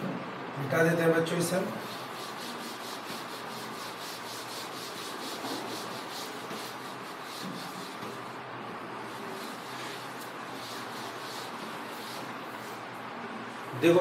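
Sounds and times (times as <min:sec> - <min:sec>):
duster rubbing chalkboard: 0:01.7 - 0:13.0.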